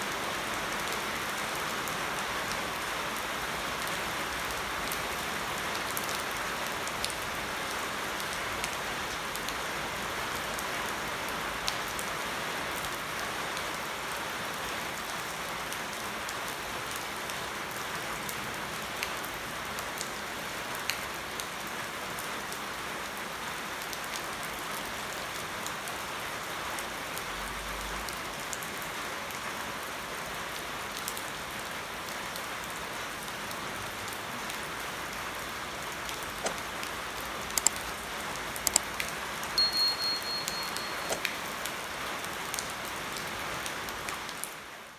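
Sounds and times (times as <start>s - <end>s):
rain on leaves and water: 0.0s - 44.9s
drops ticking: 37.5s - 37.8s.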